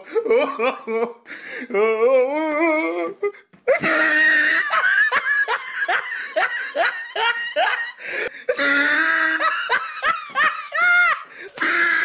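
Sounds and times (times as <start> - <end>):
person laughing hard: 0.0 - 1.3, 3.7 - 12.0.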